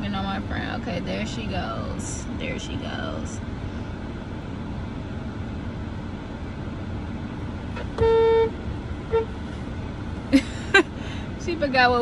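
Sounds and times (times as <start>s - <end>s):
cabin hum: 0.0s - 12.0s
car horn honks: 7.8s - 9.4s.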